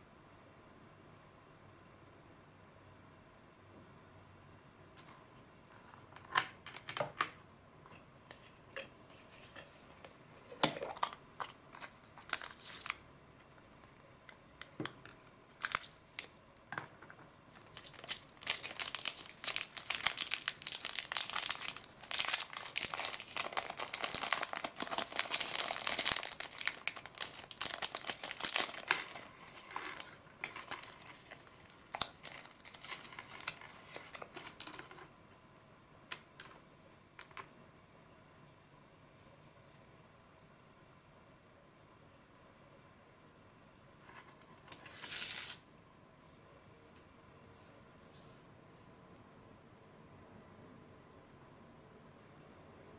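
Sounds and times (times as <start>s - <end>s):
plastic bag crinkling: 9.3s - 13.0s, 15.5s - 16.4s, 17.3s - 35.0s.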